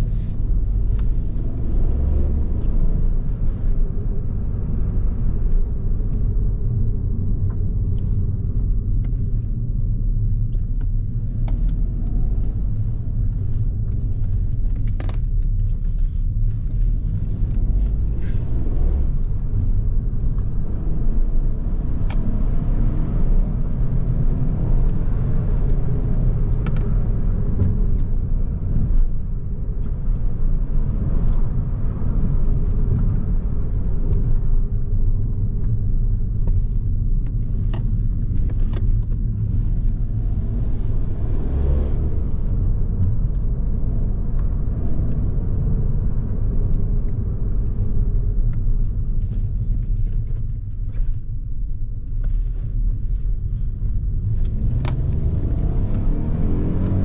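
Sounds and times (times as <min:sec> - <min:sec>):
car engine rumble: 0:00.0 - 0:57.0
tyre and road noise: 0:00.0 - 0:57.0.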